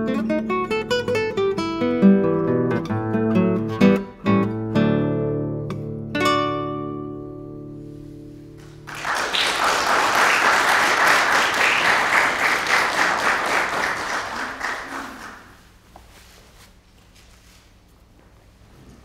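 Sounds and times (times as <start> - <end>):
classical guitar chord ringing: 0.0 - 8.9
audience applause: 8.6 - 15.6.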